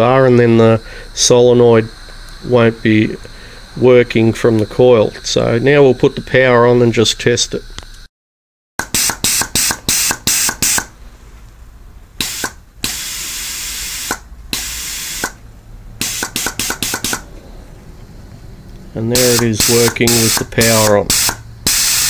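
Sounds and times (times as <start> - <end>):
compressed air hissing in bursts: 8.8 - 11.4, 12.2 - 17.8, 19.0 - 22.0.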